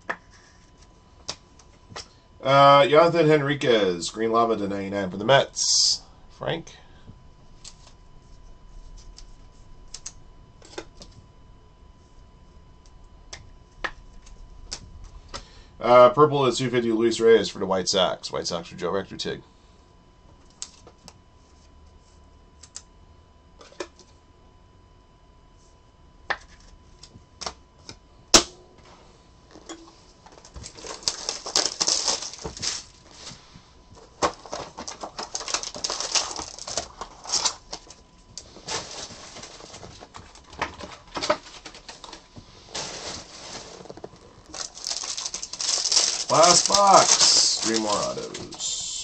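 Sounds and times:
foil packs crinkling: 30.1 - 49.0.

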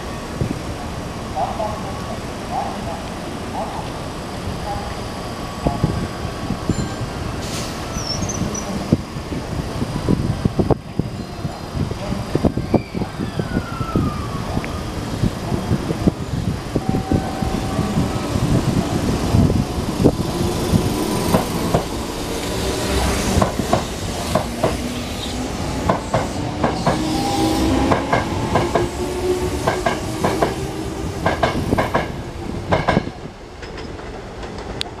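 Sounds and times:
train wheels clicking over rail joints: 20.0 - 22.7, 23.3 - 25.0, 29.6 - 30.6, 31.2 - 35.0.

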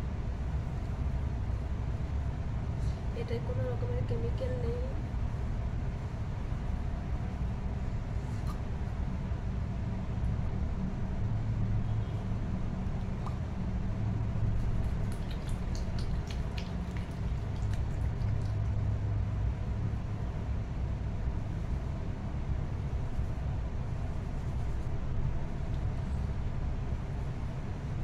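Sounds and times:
steady low rumble: 0.0 - 28.0
wet clicks of hair gel: 14.8 - 18.7.

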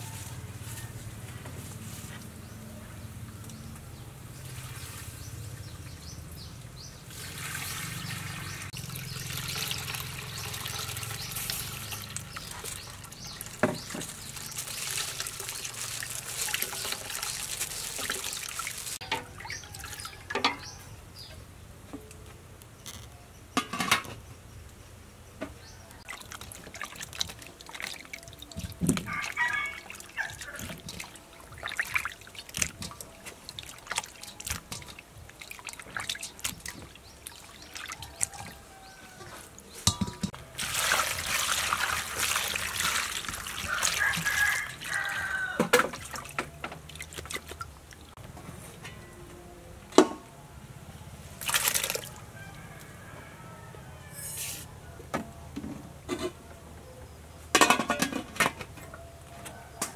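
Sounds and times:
ladle stirring liquid: 7.3 - 20.6, 26.0 - 38.7, 39.7 - 48.2
liquid pouring into pot: 39.9 - 44.8.

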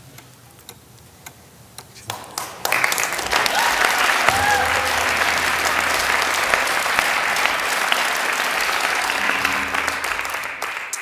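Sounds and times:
audience applauding: 2.1 - 11.0.

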